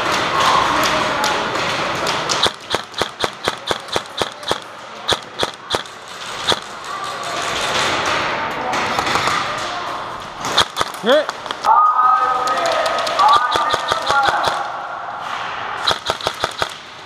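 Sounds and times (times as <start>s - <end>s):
airsoft gun shots: 2.3s - 6.7s, 10.4s - 11.7s, 12.8s - 14.7s, 15.8s - 16.9s.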